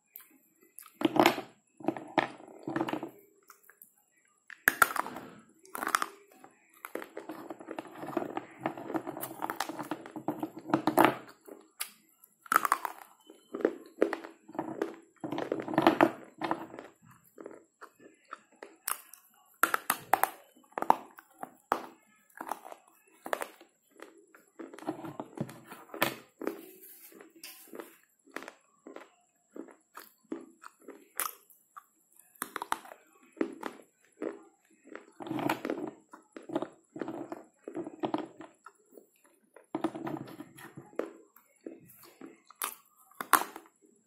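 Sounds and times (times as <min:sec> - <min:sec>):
dry crunching chewing: 0:04.5 - 0:43.7
crunching snaps of biting: 0:11.3 - 0:15.6, 0:27.2 - 0:38.8.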